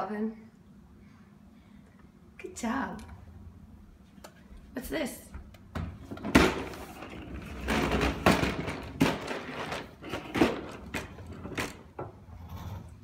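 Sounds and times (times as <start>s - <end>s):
baby walker rolling on hardwood floor: 6.7s - 12.9s.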